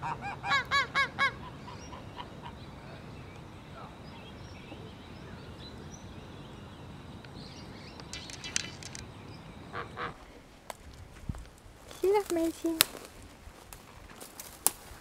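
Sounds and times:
faint bird chirps: 0:01.3 - 0:10.4
harsh rattling bird call: 0:03.6 - 0:10.2.

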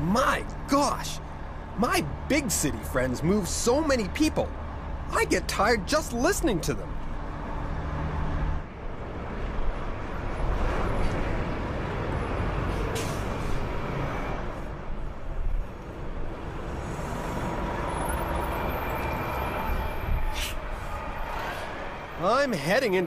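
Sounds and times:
air brakes hissing: 0:12.7 - 0:13.7, 0:19.6 - 0:21.8.

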